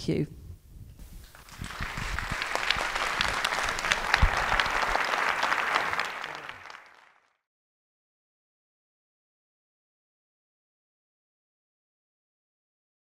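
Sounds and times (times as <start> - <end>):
audience applauding: 1.3 - 7.4.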